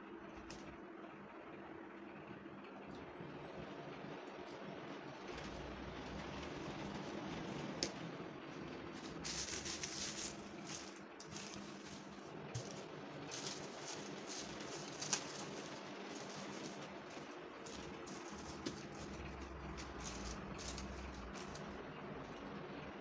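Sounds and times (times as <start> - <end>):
faint steady hum: 0.0 - 23.0
plastic gloves and paper rustling: 8.8 - 22.3.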